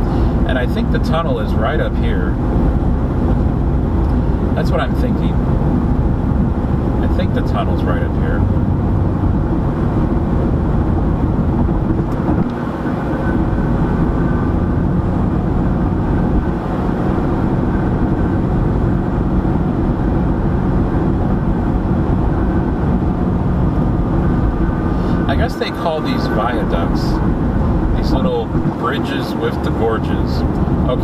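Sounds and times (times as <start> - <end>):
car road noise at highway speed: 0.0 - 31.0.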